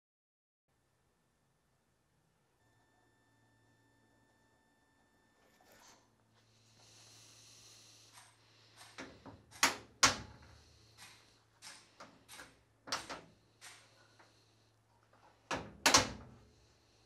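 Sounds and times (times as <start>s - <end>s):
door latch and handle clicks: 11.6s - 13.9s, 15.5s - 16.3s.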